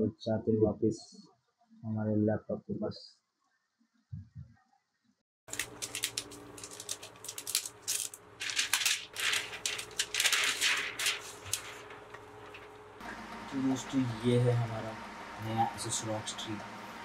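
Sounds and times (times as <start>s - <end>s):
plastic wrap crinkling: 5.5s - 12.9s.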